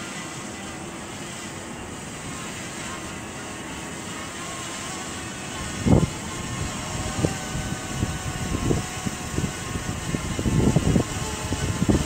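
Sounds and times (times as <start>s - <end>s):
drone propellers whining: 0.0s - 12.0s
wind buffeting microphone: 5.4s - 12.0s.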